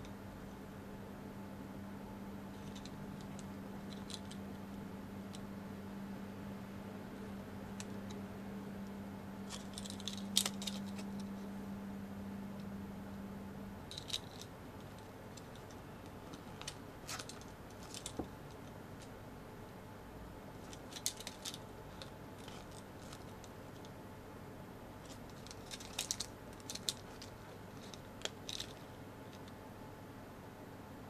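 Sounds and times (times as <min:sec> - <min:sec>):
squishy toy clicks and crinkles: 0:09.5 - 0:11.3, 0:13.9 - 0:18.7, 0:20.6 - 0:23.9, 0:25.0 - 0:29.5.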